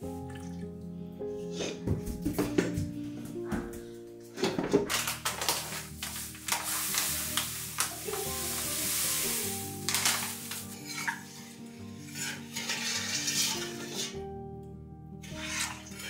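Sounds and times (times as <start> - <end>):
soft background music: 0.0 - 16.0
hissing: 5.6 - 14.2
stirring and clinking in saucepan: 9.9 - 14.2, 15.2 - 16.0.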